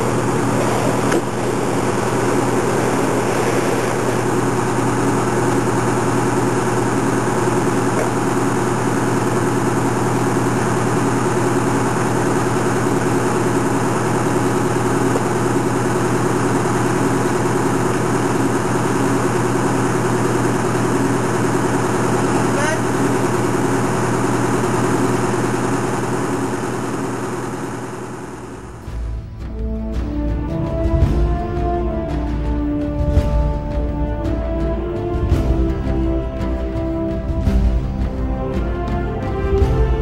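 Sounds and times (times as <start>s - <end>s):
fire engine idling: 0.0s - 29.8s.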